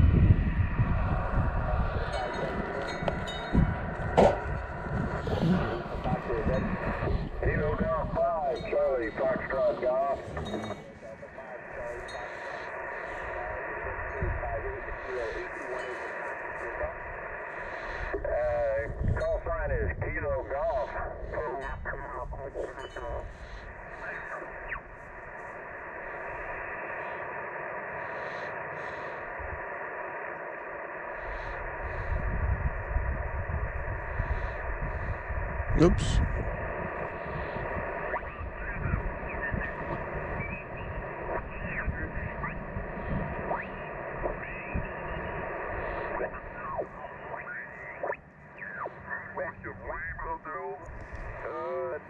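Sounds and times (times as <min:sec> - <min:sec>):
radio static hiss: 0:00.0 - 0:52.0.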